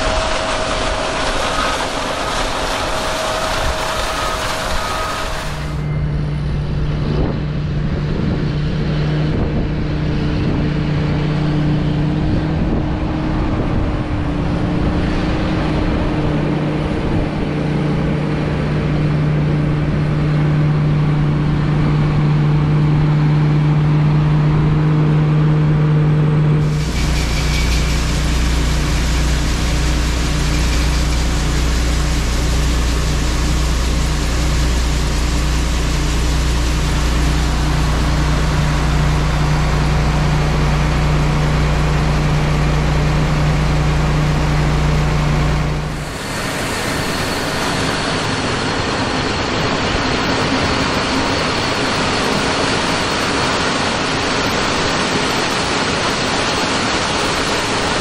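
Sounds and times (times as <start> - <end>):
auger pouring grain: 0.0 - 5.8, 26.6 - 41.5, 45.8 - 48.8
tractor diesel engine droning: 0.0 - 58.0.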